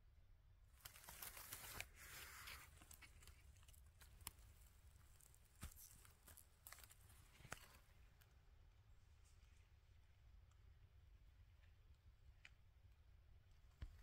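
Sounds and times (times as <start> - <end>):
leaf litter rustling: 0.8 - 7.8.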